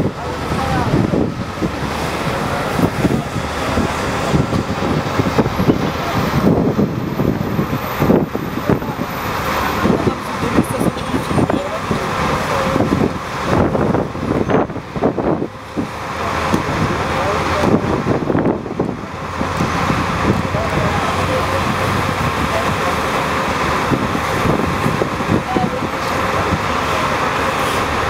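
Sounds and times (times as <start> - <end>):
dense road traffic: 0.0 - 28.0.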